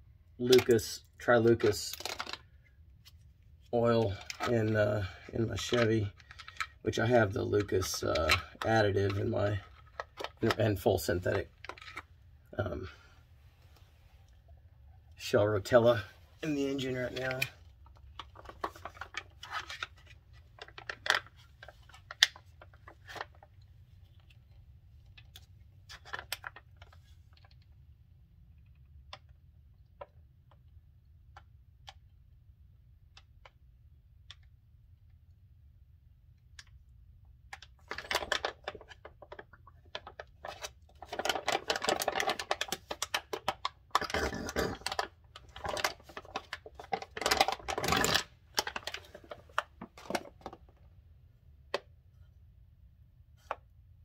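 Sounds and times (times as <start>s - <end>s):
plastic pouch crinkling: 1.8s - 2.6s, 37.9s - 50.6s.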